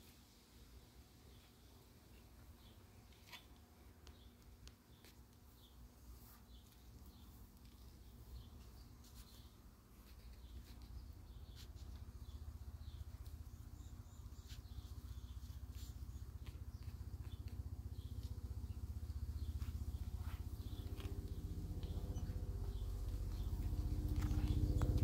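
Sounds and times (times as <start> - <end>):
low rumble: 18.4 - 25.0.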